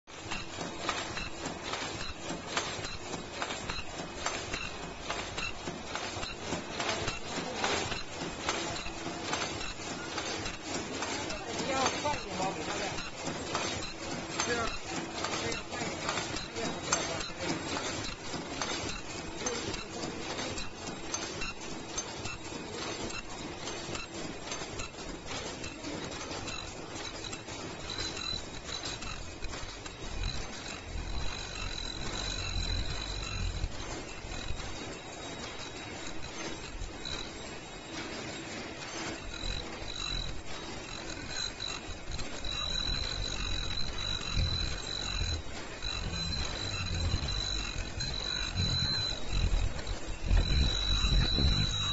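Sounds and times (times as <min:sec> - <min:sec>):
machine clicking and clattering: 0:00.1 - 0:51.9
machine hum: 0:26.5 - 0:38.2, 0:39.0 - 0:51.9
high-pitched whine: 0:39.3 - 0:51.9.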